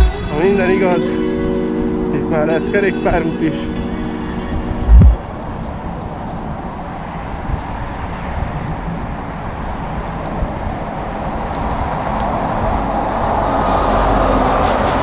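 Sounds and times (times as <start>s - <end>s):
wind rumble on microphone: 3.7s - 15.0s
tyre noise on asphalt: 4.8s - 15.0s.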